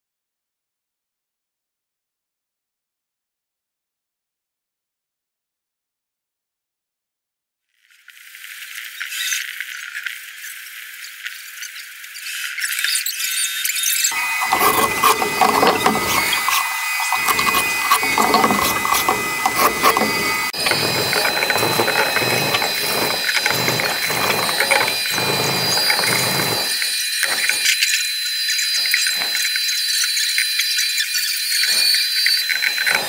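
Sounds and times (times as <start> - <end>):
sanding wooden board: 14.1 - 27.8
high-pitched whine: 14.1 - 33.0.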